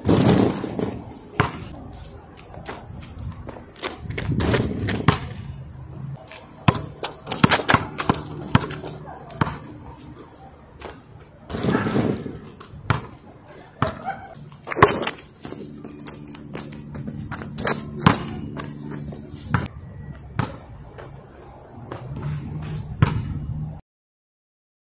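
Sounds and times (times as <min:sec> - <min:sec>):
basketball bouncing on asphalt: 0:00.0 - 0:05.6, 0:06.2 - 0:23.6.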